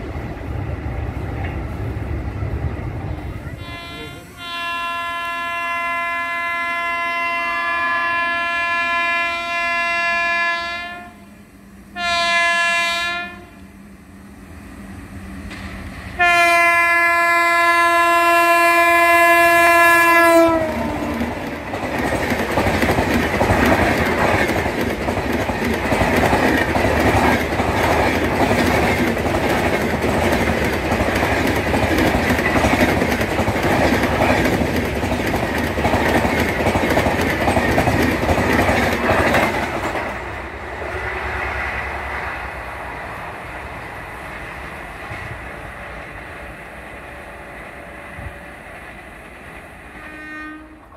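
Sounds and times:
train horn blasts: 0:03.4 - 0:13.7, 0:16.2 - 0:21.6, 0:49.9 - 0:50.9
wheels clacking over rail joints: 0:20.5 - 0:40.5.

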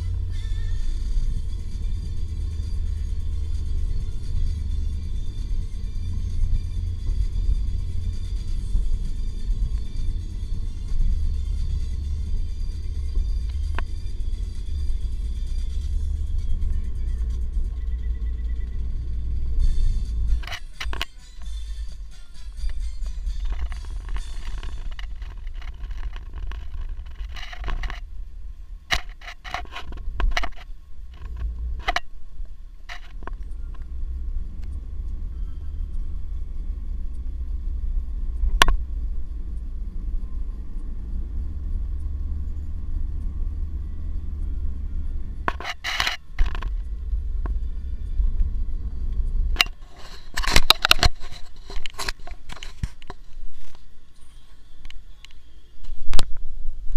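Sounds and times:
clicks and rattles inside car: 0:00.0 - 0:32.2, 0:32.8 - 0:33.9, 0:45.2 - 0:53.2
road and engine rumble: 0:00.0 - 0:56.9.

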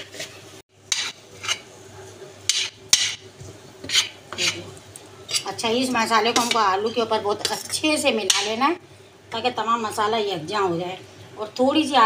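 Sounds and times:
spoon scraping a pan: 0:00.0 - 0:01.8, 0:02.4 - 0:04.7, 0:05.3 - 0:05.6, 0:06.3 - 0:06.7.

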